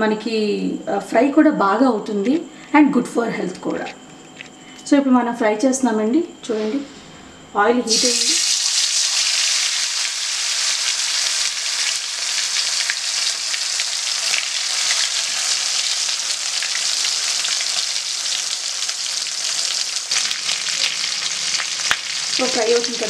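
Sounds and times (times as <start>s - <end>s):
chicken sizzling in hot oil: 7.9s - 23.0s.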